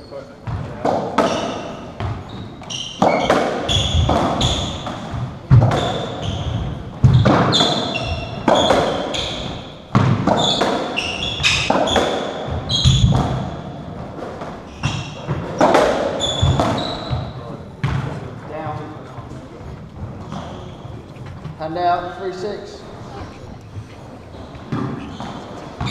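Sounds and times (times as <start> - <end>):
shoes squeaking on wooden floor: 0.0 - 25.9
ball smacking off court walls: 3.0 - 18.3.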